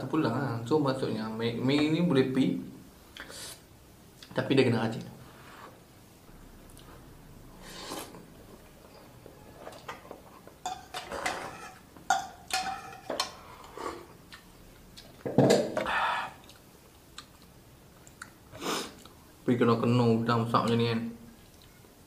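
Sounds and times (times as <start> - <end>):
utensils clinking on bowl: 10.6 - 13.4.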